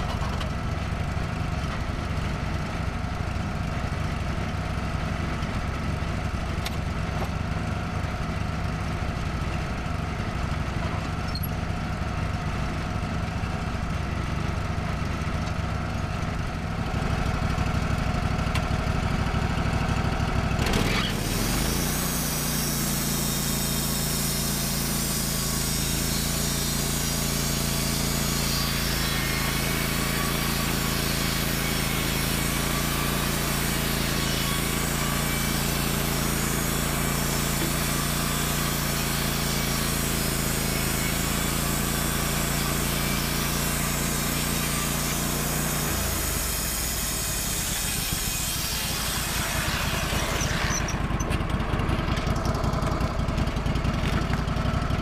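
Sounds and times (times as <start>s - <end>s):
sawmill engine revving: 7.6s - 55.0s
band saw blade hissing through log: 20.8s - 51.4s.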